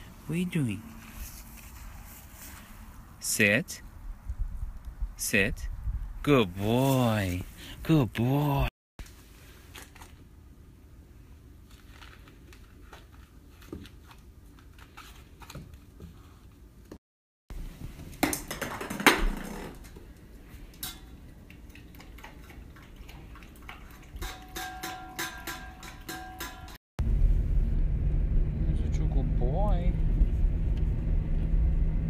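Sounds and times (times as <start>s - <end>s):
ball knocking against metal bowl: 24.2s - 26.8s
metal bowl ringing: 24.2s - 26.8s.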